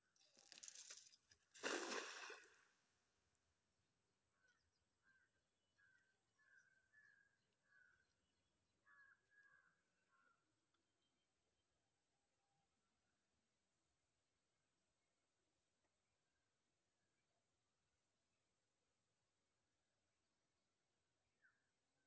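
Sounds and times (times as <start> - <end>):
net splashing on water: 1.6 - 2.6.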